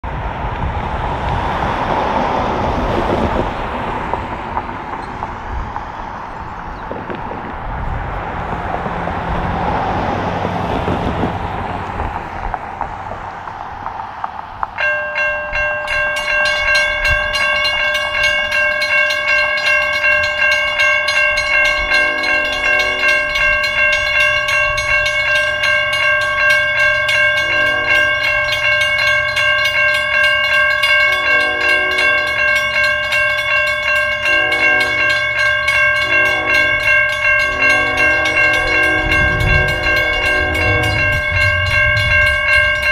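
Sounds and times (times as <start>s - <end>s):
crossing warning bell ringing: 14.6s - 42.9s.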